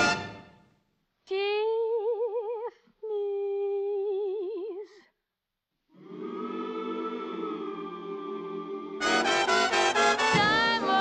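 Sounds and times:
woman singing with vibrato: 1.3s - 4.9s, 10.3s - 11.0s.

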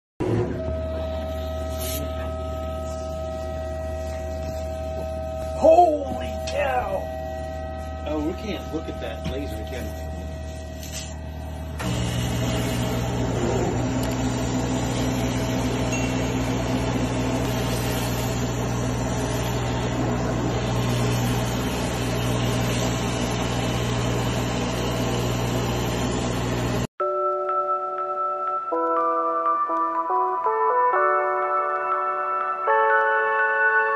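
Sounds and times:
laser cutter machine hum: 0.3s - 26.9s.

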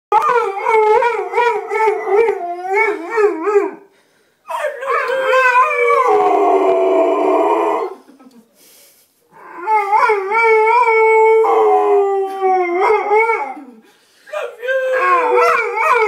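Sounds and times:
dog howling: 0.1s - 3.8s, 4.5s - 8.0s, 9.4s - 16.0s.

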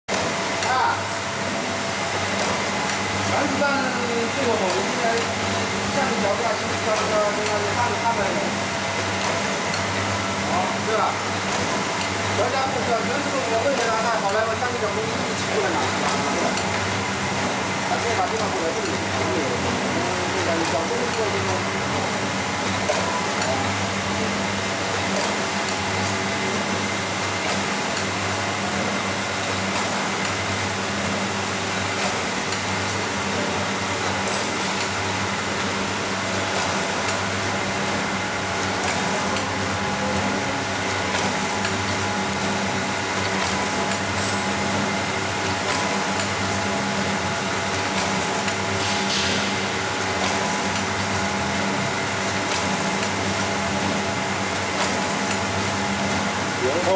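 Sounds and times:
packing machine humming and pulsing: 0.1s - 56.9s
faint machine clicks: 35.6s - 37.3s, 45.4s - 51.0s.

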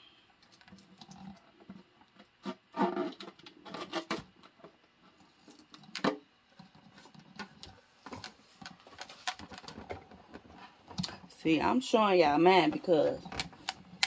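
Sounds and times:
plastic balloon rubbing and crinkling: 1.0s - 4.2s.

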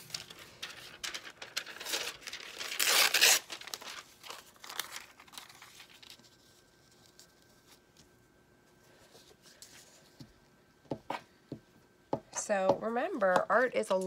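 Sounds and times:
paper crinkling and tearing: 0.0s - 8.1s.

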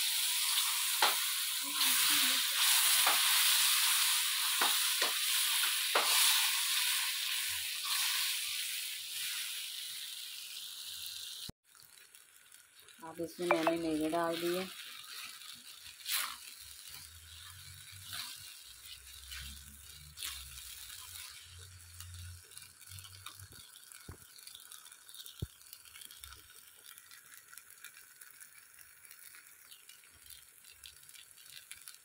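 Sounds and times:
spatula scraping pan: 14.4s - 21.6s.

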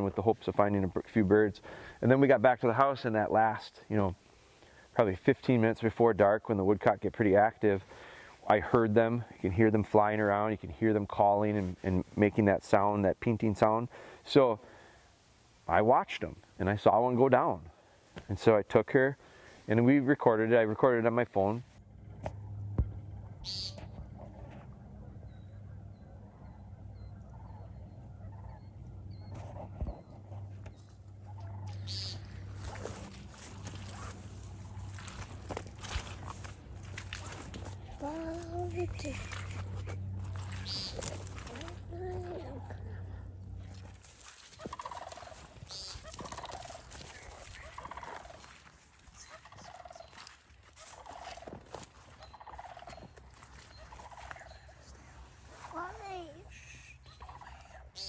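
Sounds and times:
woodcock buzzy nasal call: 23.4s - 23.8s, 31.6s - 32.3s, 40.6s - 41.2s, 44.7s - 46.6s
bird buzzy nasal call: 23.4s - 23.9s, 31.6s - 33.0s, 39.2s - 41.6s, 44.6s - 48.4s
faint rustling steps: 29.2s - 42.8s.

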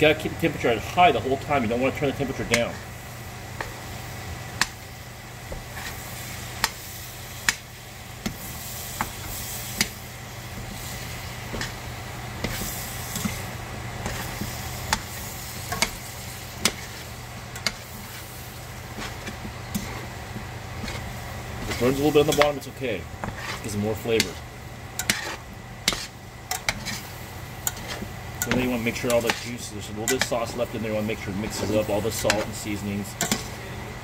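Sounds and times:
cabbage sizzling in pot: 0.0s - 34.0s
metal tongs clicking against pot: 26.5s - 26.8s, 33.2s - 33.4s.

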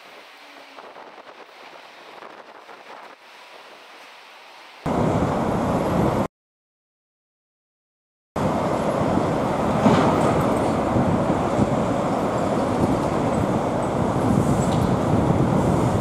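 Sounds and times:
street traffic engines: 4.9s - 6.3s, 8.4s - 16.0s.

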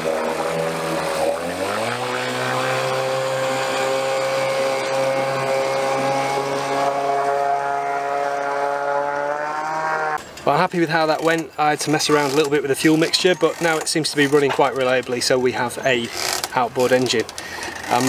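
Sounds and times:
outboard engine revving: 0.0s - 10.2s, 16.0s - 18.0s.

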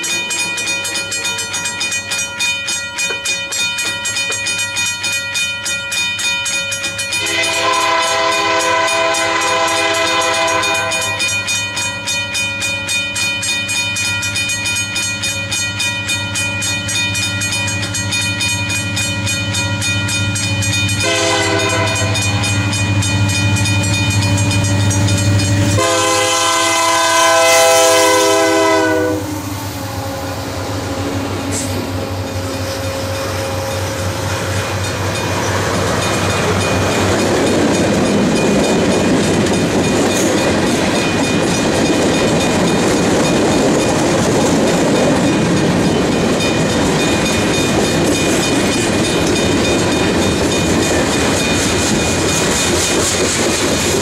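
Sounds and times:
diesel locomotive engine drone: 6.8s - 54.0s
train air horn blasts: 7.2s - 11.3s, 21.0s - 22.5s, 25.7s - 30.5s.

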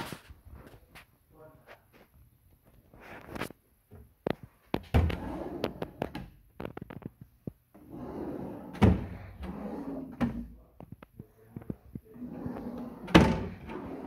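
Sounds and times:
drawer sliding on runners: 12.1s - 14.0s.

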